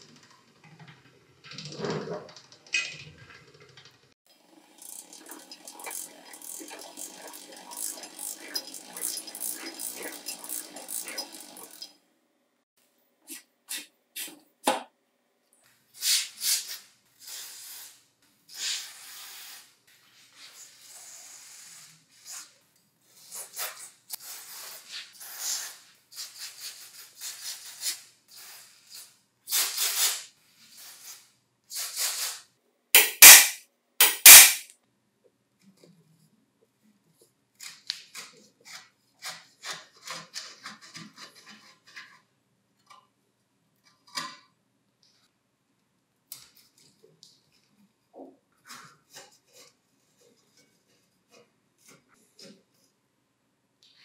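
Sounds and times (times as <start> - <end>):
tool clicks: 33.0 - 34.7.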